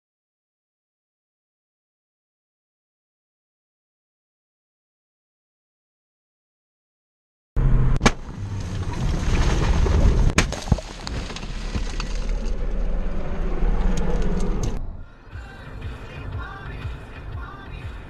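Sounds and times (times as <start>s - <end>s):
road and wind noise: 7.6s - 10.4s, 11.0s - 18.0s.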